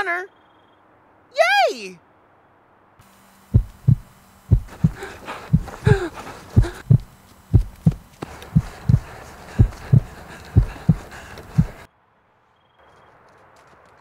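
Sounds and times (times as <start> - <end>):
steady low hum: 2.6 - 11.9
heartbeat thumps: 3.5 - 11.9
breathy gasps: 4.6 - 7.0, 8.4 - 11.9.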